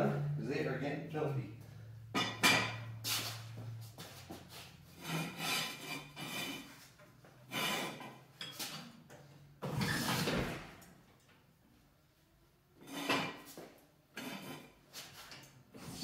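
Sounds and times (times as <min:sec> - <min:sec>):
floor jack scraping strokes: 0:03.0 - 0:08.2.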